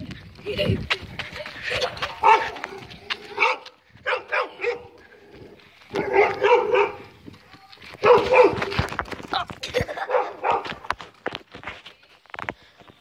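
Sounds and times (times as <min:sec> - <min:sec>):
dogs barking: 0:02.0 - 0:02.7, 0:03.3 - 0:05.0, 0:05.9 - 0:07.1, 0:08.0 - 0:08.7, 0:10.0 - 0:10.8.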